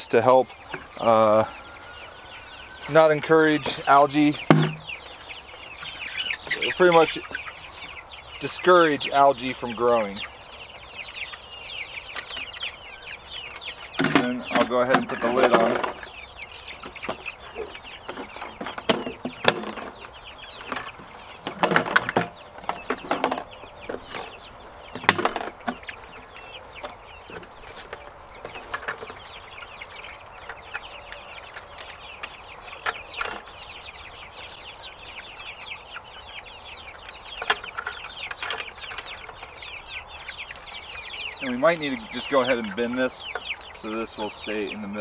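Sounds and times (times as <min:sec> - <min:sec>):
faint chirping: 0:00.0 - 0:45.0
plastic bucket clicks and knocks: 0:04.5 - 0:04.8, 0:18.6 - 0:19.9, 0:20.6 - 0:23.4, 0:25.0 - 0:25.8.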